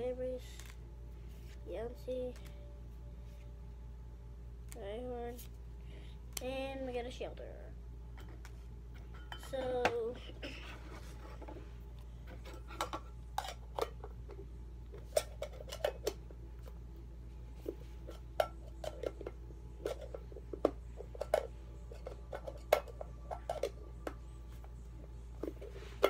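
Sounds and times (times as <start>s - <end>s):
metal tin clinking and clicking: 21.1s - 24.2s.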